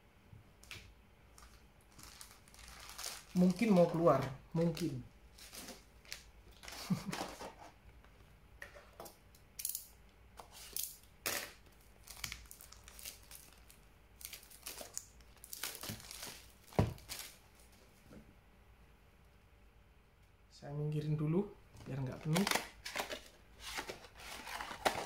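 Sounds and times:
cards and foil crinkling: 0.6 - 7.6, 10.6 - 17.4, 22.0 - 25.0.

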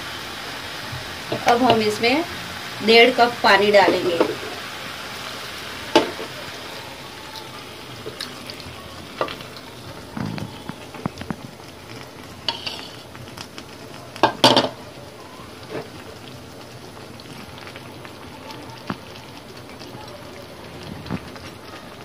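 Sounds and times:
vegetables sizzling in a pot: 0.0 - 22.0
metal spatula scraping a bowl: 12.5 - 13.0.

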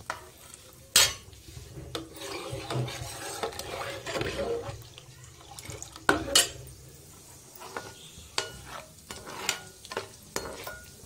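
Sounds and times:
light sizzle in pan: 0.0 - 11.0
utensil scraping and knocking pan: 1.0 - 4.8, 7.6 - 11.0.

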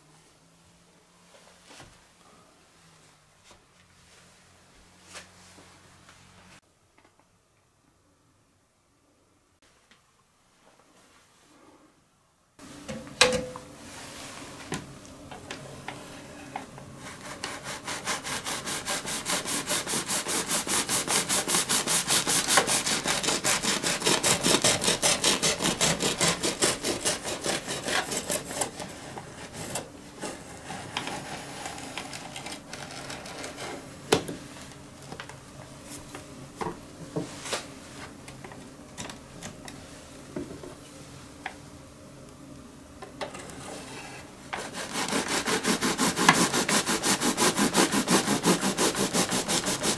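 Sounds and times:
bread knife sawing loaf: 17.0 - 32.2, 43.6 - 49.9.

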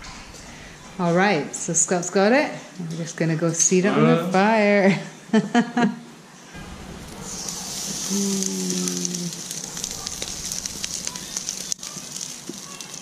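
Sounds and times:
fire crackling: 0.0 - 2.5, 6.6 - 13.0
low steady hum: 0.0 - 3.0, 6.5 - 12.4
meat sizzling on grill: 6.6 - 13.0.

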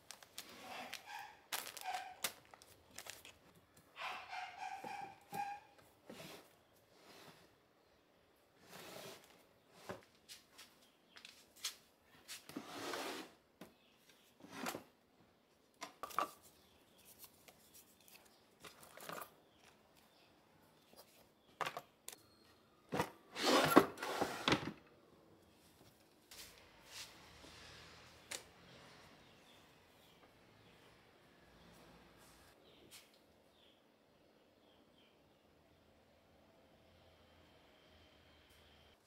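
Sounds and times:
drawers sliding open and shut: 8.6 - 10.0, 12.5 - 13.4, 14.4 - 14.9, 22.9 - 24.9.

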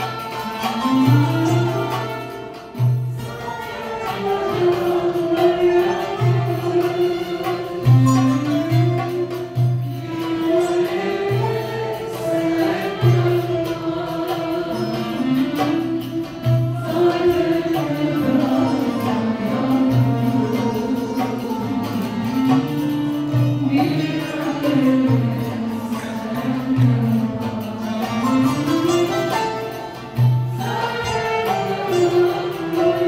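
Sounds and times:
oud: 0.0 - 33.0
voices singing slow melody: 10.4 - 22.6.

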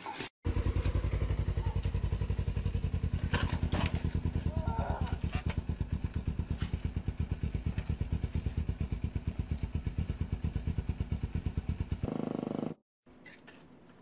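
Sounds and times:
motorcycle engine idling: 0.5 - 12.7.

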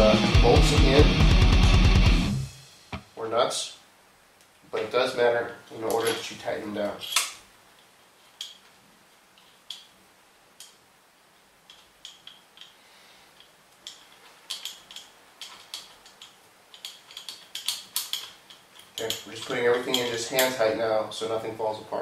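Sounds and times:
engine parts clicking: 11.7 - 20.6.

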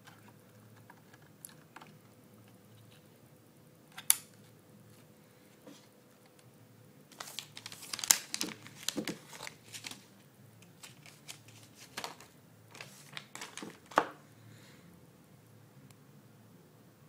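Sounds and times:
plastic bag crinkling: 7.1 - 10.1, 10.8 - 14.2.

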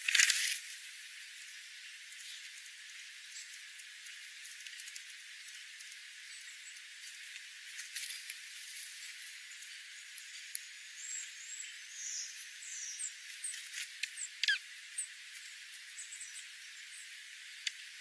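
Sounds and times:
birds pecking on gravel: 0.0 - 1.0, 7.0 - 10.8
steady hiss: 0.0 - 18.0
short high bird chirps: 14.2 - 14.6.

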